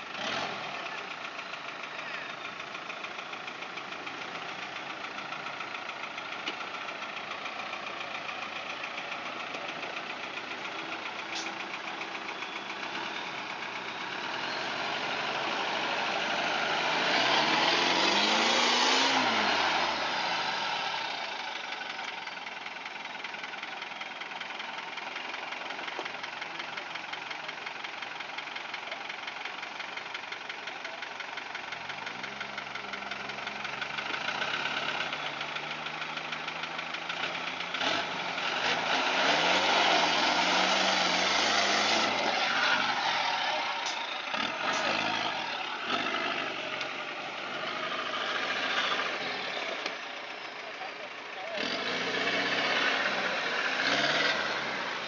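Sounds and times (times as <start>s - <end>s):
engine revving under load: 0.0s - 1.0s, 12.7s - 21.6s, 33.4s - 50.3s, 51.4s - 55.0s.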